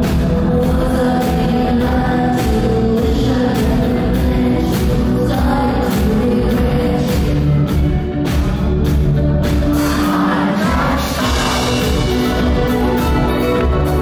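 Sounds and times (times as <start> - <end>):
woman singing into microphone: 0.0 - 7.7
live band playing loud: 0.0 - 14.0.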